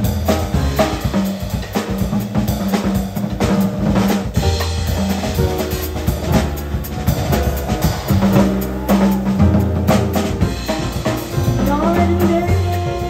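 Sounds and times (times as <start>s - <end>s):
cymbals: 0.0s - 13.0s
jazz drum kit playing: 0.0s - 13.0s
long low bass notes: 4.4s - 13.0s.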